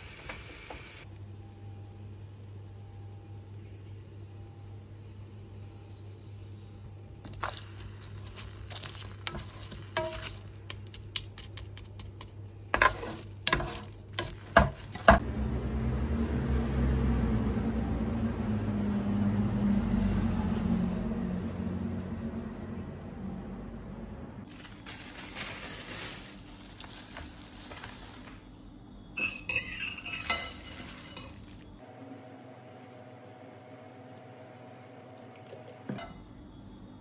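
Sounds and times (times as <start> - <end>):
food sizzling: 7.2 - 12.1, 24.5 - 28.5, 29.5 - 31.8
spatula scraping frying pan: 7.8 - 10.6, 12.7 - 15.2.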